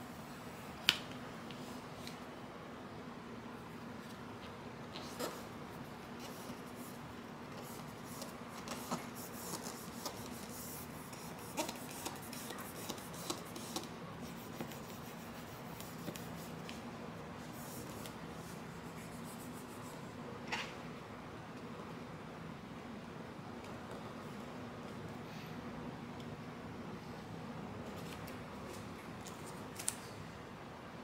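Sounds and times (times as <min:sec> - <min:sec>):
hands rubbing vinyl film: 0:06.2 - 0:16.9.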